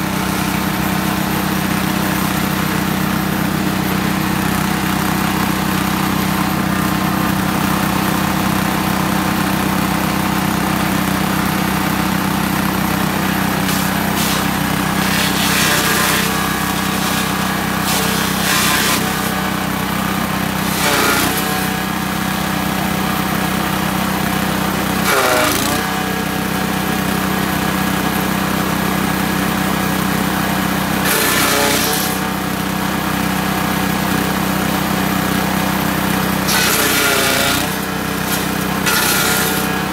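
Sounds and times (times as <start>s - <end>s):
small petrol engine running: 0.0s - 39.9s
branches being shredded: 13.6s - 19.4s, 36.5s - 39.9s.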